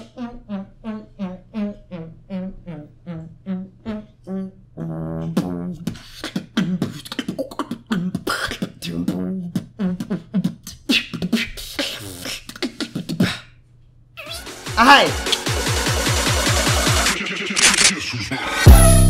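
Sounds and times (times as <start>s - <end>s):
person beatboxing: 3.1s - 13.6s, 14.2s - 18.8s.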